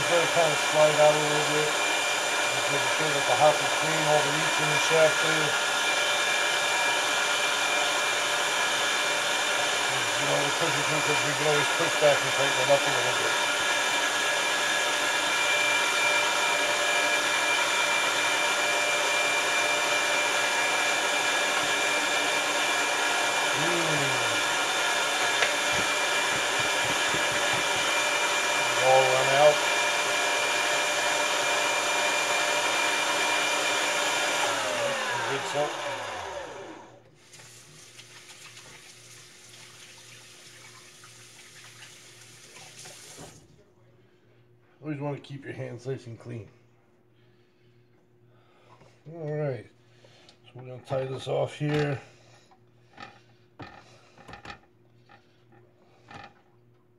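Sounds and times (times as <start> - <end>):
meat grinder motor whining: 0.0 - 37.1
hands washing under water: 37.2 - 43.4.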